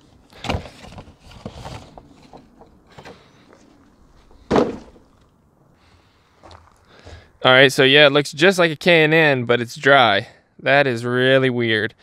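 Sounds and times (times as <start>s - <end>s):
cardboard box rustling: 0.4s - 3.2s
loud thump: 4.4s - 5.1s.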